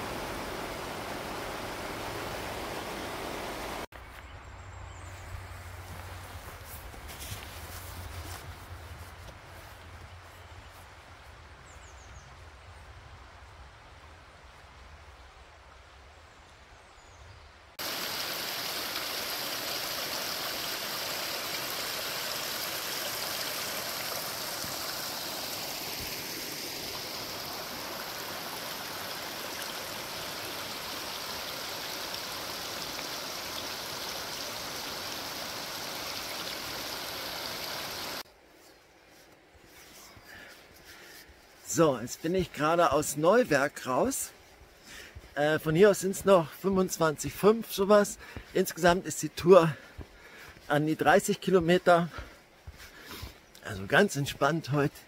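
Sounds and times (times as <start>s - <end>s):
brook splashing over rocks: 17.8s - 38.2s.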